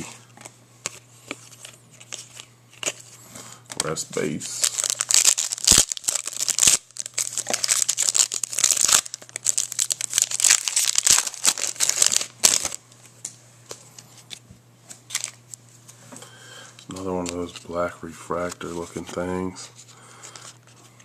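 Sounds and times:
wrapper tearing and crinkling: 4.5 - 12.8, 15.1 - 15.4.

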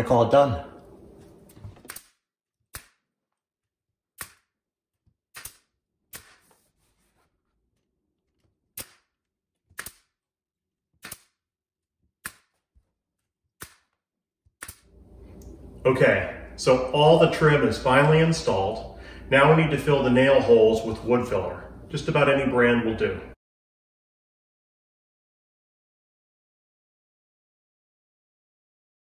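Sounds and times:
nail gun firing: 5.3 - 6.4.

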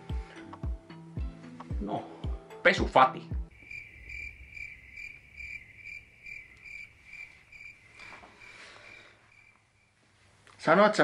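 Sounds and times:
crickets chirping: 3.5 - 10.2.

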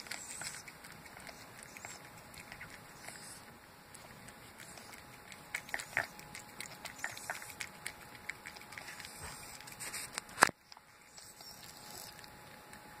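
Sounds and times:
cat chewing wet food: 0.0 - 13.0
cat snuffly breathing: 8.8 - 10.1.

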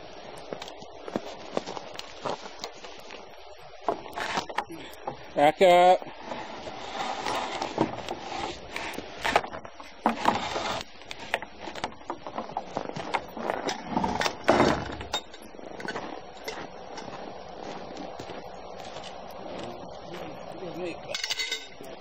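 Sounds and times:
harness chains clinking: 21.1 - 22.0.

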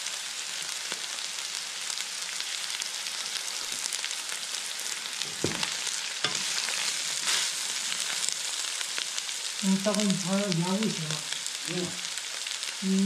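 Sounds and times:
meat and vegetables sizzling in wok: 0.0 - 13.0
wooden spatula scraping pan: 5.3 - 7.6.

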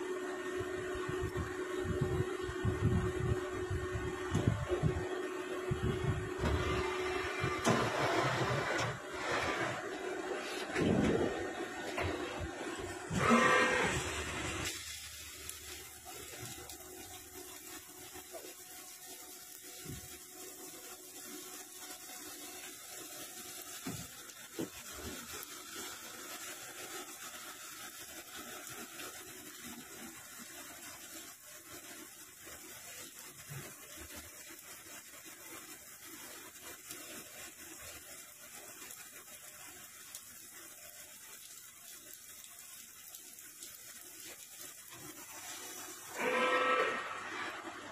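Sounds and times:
coolant spraying and hissing: 0.0 - 47.9.

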